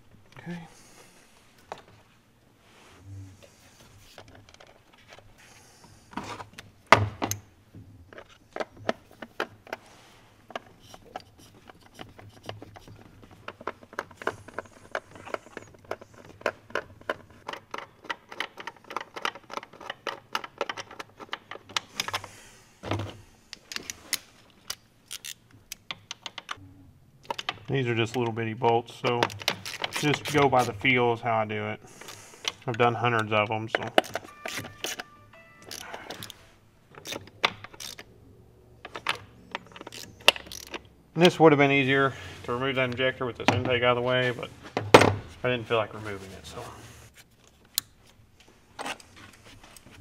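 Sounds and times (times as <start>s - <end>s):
hand ratchet clicking: 25.1s - 26.6s, 37.0s - 38.0s, 39.8s - 40.8s.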